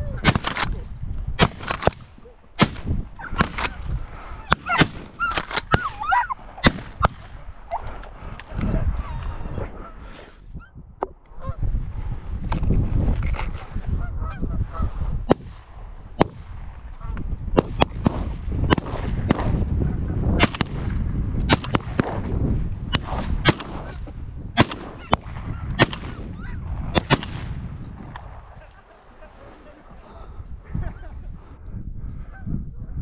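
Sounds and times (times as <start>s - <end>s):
wind rumbling on microphone: 0.0s - 33.0s.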